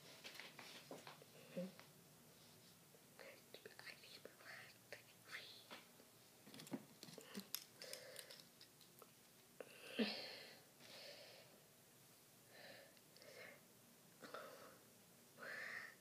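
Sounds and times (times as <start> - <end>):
person sighing: 9.6 - 11.4.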